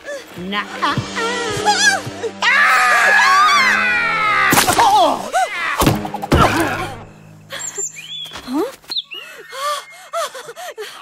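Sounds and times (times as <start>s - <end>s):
film score music: 0.0s - 8.7s
cry falling in pitch: 1.2s - 5.8s
cartoon thump: 5.8s - 6.8s.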